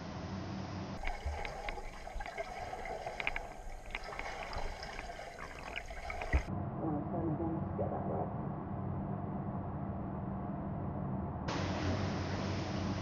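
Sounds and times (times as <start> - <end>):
low steady hum: 0.0 - 13.0
underwater bubbles popping: 1.0 - 6.5.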